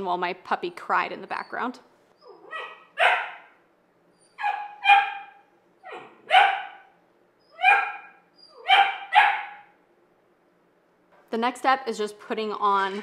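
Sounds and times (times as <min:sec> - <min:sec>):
puppy barking: 0:02.2 - 0:03.6, 0:04.3 - 0:09.8.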